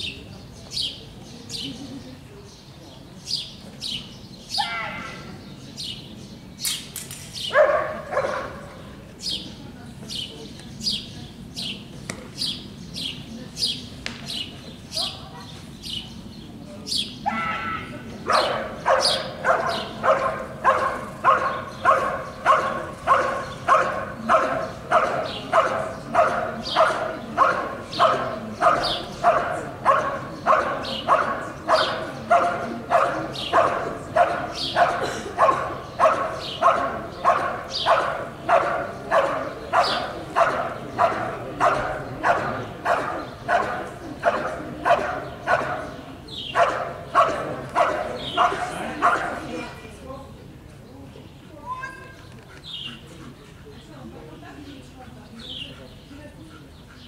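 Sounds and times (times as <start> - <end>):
dog barking rhythmically: 7.6 - 8.6, 18.3 - 49.4.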